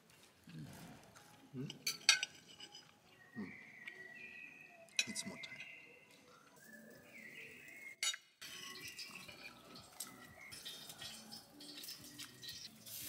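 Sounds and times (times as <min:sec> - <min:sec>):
cutlery scraping on plates: 0:01.7 - 0:03.0, 0:08.0 - 0:13.0.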